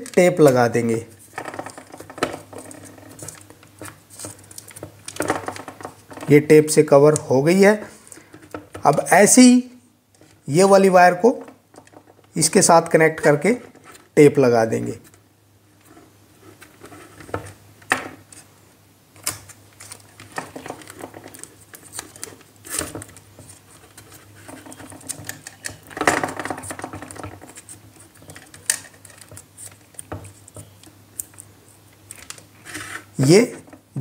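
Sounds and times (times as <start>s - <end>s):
insulating tape crinkling: 0.0s - 6.4s, 19.1s - 33.8s.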